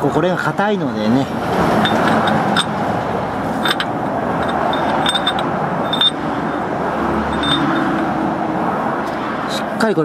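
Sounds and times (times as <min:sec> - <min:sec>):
steady background rush: 0:01.3 - 0:09.6
wrench clinking on metal cap: 0:01.8 - 0:02.8, 0:03.5 - 0:06.6, 0:07.3 - 0:08.1.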